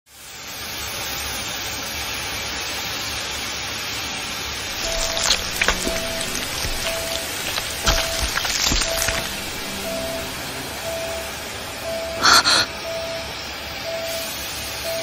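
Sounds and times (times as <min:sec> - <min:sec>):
sparse music notes: 0:04.8 - 0:13.5.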